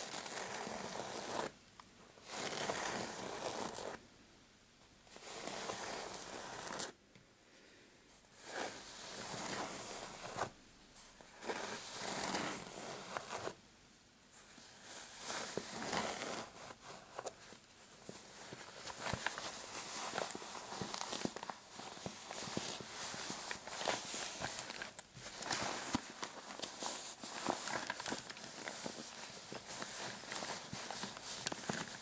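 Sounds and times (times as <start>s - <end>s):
fingernails scratching fabric: 0.0s - 1.5s, 2.3s - 4.0s, 5.2s - 7.0s.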